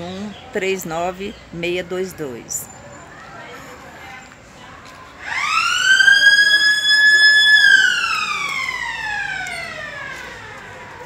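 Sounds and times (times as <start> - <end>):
siren wailing: 5.2 - 11.0.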